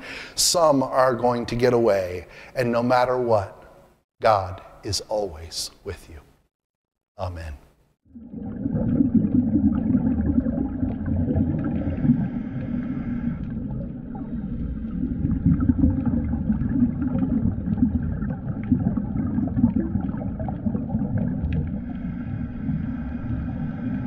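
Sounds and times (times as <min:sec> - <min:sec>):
underwater gurgles: 0:08.1 - 0:24.0
muffled underwater rumble: 0:08.4 - 0:24.0.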